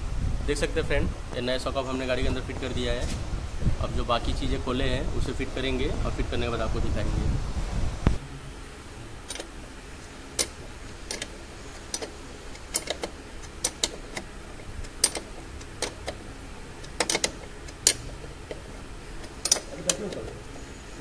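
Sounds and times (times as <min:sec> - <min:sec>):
spanner clicking on nut: 0:09.2 - 0:09.6, 0:10.3 - 0:20.8.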